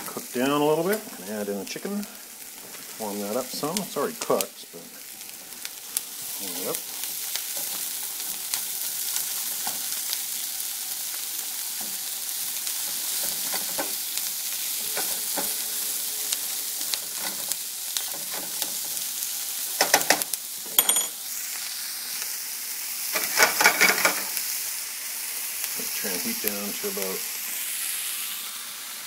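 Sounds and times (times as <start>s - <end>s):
food sizzling in oil: 0.0s - 29.0s
spatula scraping a pan: 11.8s - 19.1s.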